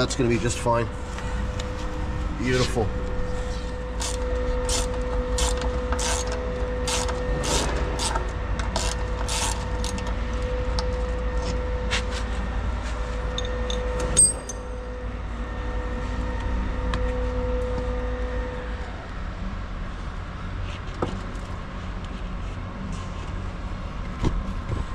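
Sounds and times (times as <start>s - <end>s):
steady hum: 0.0s - 24.9s.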